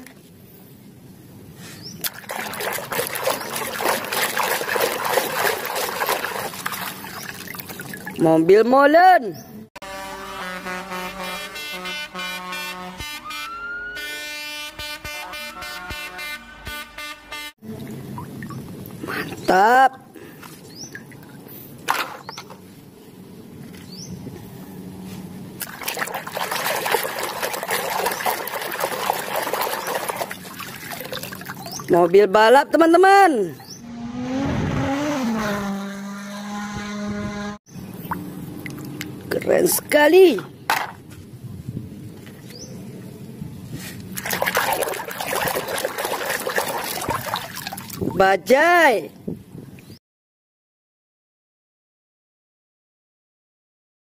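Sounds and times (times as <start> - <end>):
water splashing in a basin: 2.0 - 8.3, 25.6 - 32.2, 37.9 - 39.6, 44.2 - 48.2.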